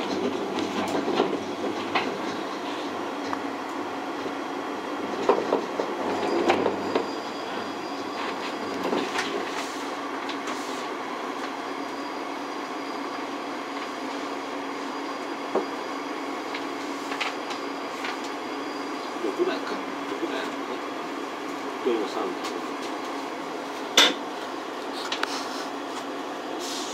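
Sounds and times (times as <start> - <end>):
suspended rail car running hum: 0.0 - 26.9.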